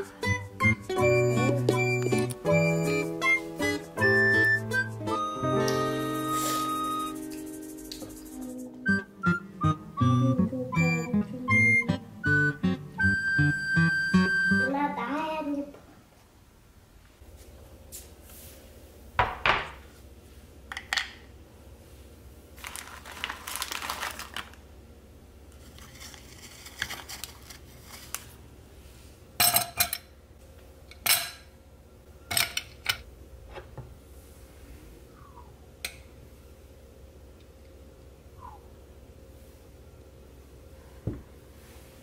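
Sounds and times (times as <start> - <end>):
dishes clinking and knocking: 19.2 - 19.8
cloth or paper rustling: 22.6 - 24.6.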